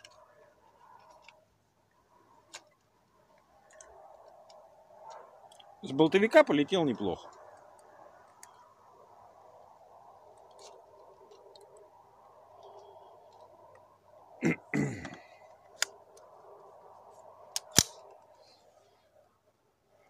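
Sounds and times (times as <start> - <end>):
rifle sharp clicks: 17.5 - 18.2.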